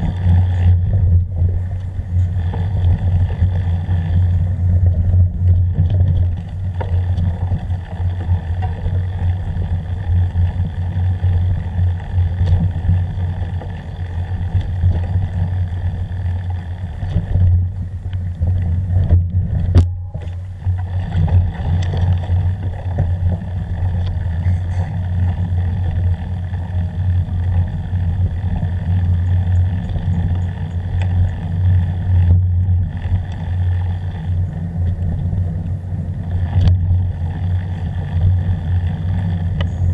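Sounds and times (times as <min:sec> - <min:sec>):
vehicle rumbling on dirt track: 0:00.0 - 0:39.9.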